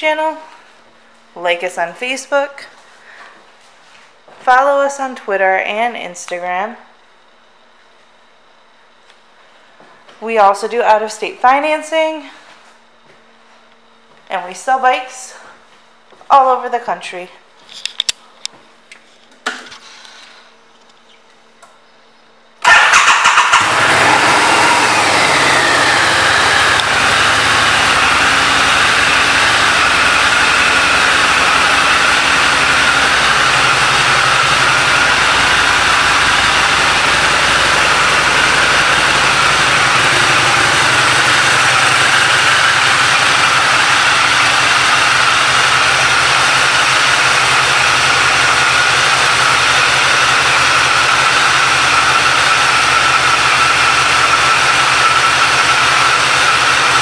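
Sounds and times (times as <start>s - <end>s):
motorcycle engine idling: 22.6s - 57.0s.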